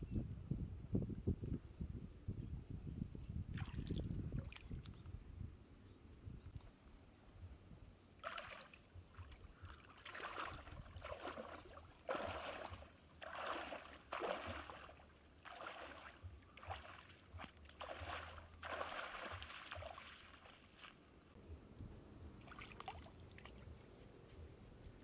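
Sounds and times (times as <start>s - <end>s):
person wading through water: 8.2s - 21.1s, 22.4s - 23.7s.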